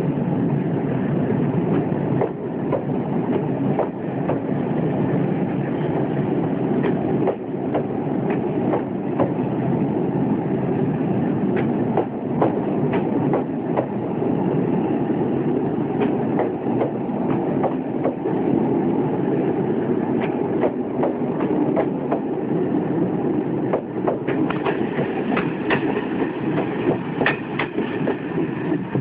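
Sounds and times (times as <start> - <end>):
train rumble: 0.0 - 29.0
train wheels clacking over rail joints: 11.5 - 14.0, 20.2 - 22.3, 23.7 - 28.9.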